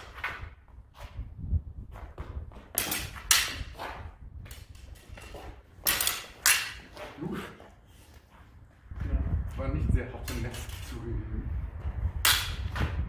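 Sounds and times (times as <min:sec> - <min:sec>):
sabre blades clashing: 0:02.8 - 0:03.8, 0:04.5 - 0:07.2, 0:12.3 - 0:12.6
low rumble: 0:08.6 - 0:13.0.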